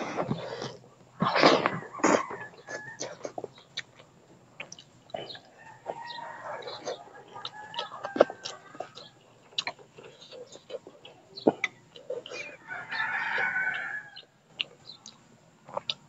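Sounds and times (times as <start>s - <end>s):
mouth sounds of eating: 0.0s - 16.0s
rooster crowing: 1.7s - 3.3s, 5.5s - 9.2s, 12.3s - 14.3s.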